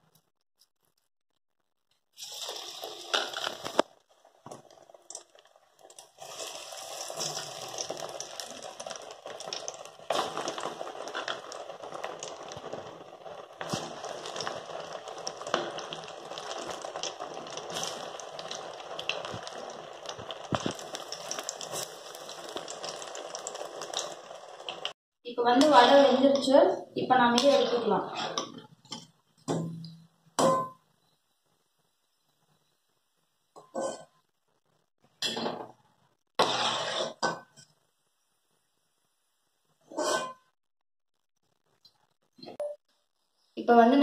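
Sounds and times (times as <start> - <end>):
fritters sizzling in hot oil: 2.1 - 29.6, 36.3 - 37.8.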